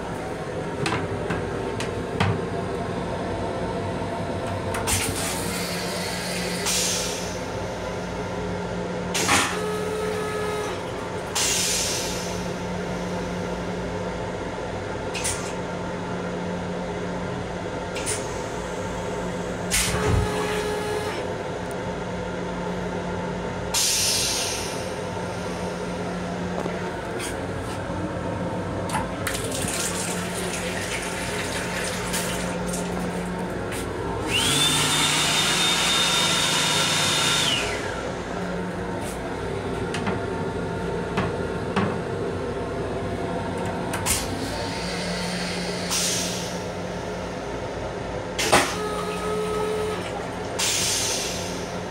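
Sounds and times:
railcar hum: 0.0 - 36.2, 37.1 - 51.9
toilet flush water hissing: 29.3 - 33.4, 49.7 - 51.8.

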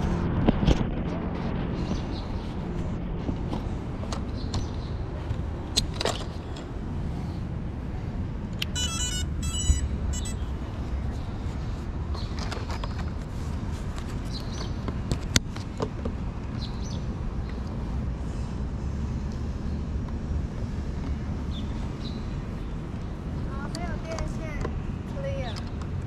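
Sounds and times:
low rumble: 0.0 - 8.6
electronic start-up beeps: 8.7 - 10.6.

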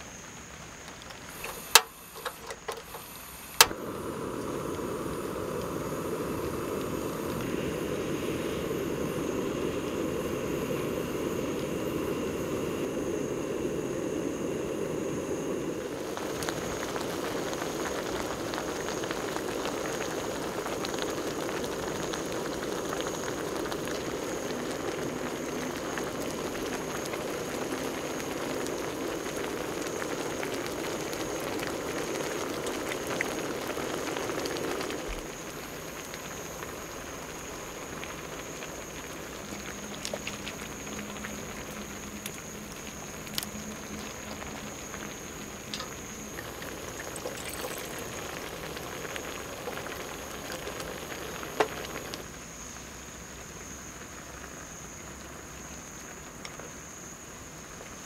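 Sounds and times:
gas burner hiss: 0.0 - 58.0
stew bubbling in a pan: 0.0 - 58.0
water poured into metal cup: 45.7 - 48.8.

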